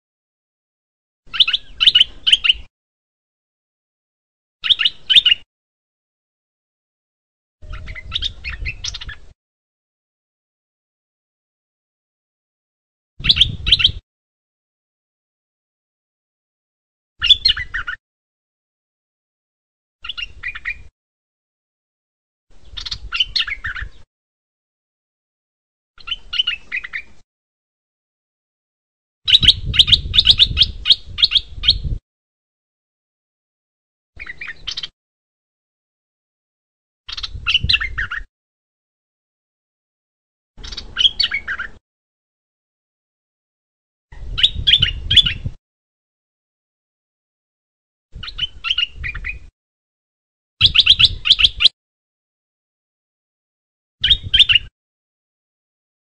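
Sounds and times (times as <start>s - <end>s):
bird chirping: 1.3s - 2.7s, 4.6s - 5.5s, 7.6s - 9.4s, 13.2s - 14.0s, 17.2s - 18.0s, 20.0s - 20.9s, 22.6s - 24.1s, 26.0s - 27.2s, 29.3s - 32.0s, 34.2s - 34.9s, 37.1s - 38.3s, 40.6s - 41.8s, 44.2s - 45.5s, 48.2s - 49.5s, 50.6s - 51.7s, 54.0s - 54.7s
bulbul singing: 1.3s - 2.7s, 4.6s - 5.5s, 7.6s - 9.3s, 13.2s - 14.0s, 17.2s - 18.0s, 22.6s - 24.1s, 26.0s - 27.2s, 29.3s - 32.0s, 34.2s - 34.9s, 37.1s - 38.3s, 40.6s - 41.8s, 50.6s - 51.7s, 54.0s - 54.7s.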